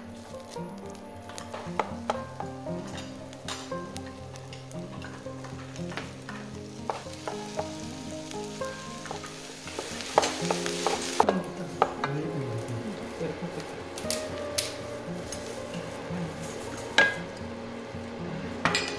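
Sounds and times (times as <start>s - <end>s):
rice sizzling in frying pan: 0.0s - 18.9s
spatula stirring and scraping: 0.2s - 12.2s.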